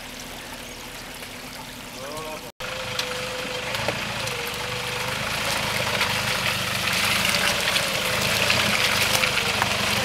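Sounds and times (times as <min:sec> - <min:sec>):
vehicle engine running at low revs: 0:02.2 - 0:10.0.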